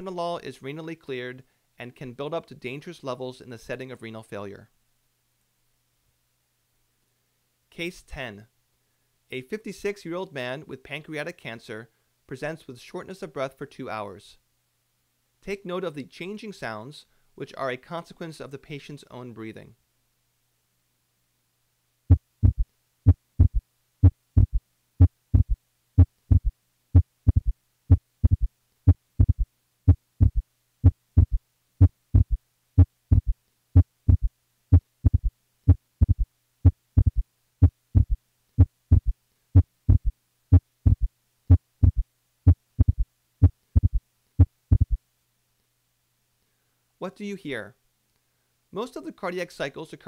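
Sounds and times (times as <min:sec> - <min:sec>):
heartbeat through stethoscope: 0:22.1 - 0:45.0.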